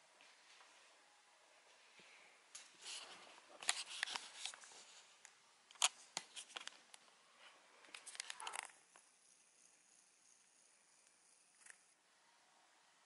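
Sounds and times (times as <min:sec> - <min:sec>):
camera handling clicks and rustles: 0:03.6 - 0:04.6, 0:05.7 - 0:06.8.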